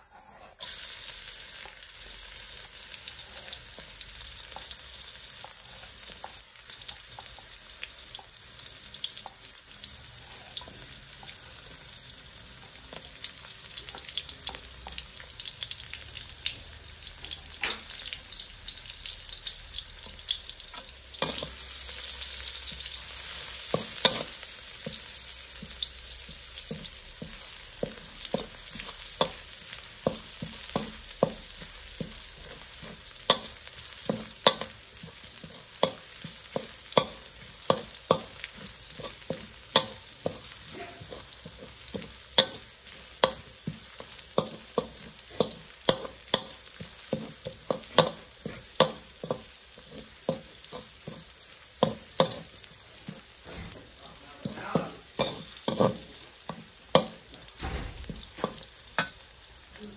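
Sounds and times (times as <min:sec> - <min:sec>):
spatula scraping metal wok: 0:00.0 - 0:01.0, 0:20.7 - 0:57.4
garlic sizzling in hot oil: 0:00.0 - 0:59.9.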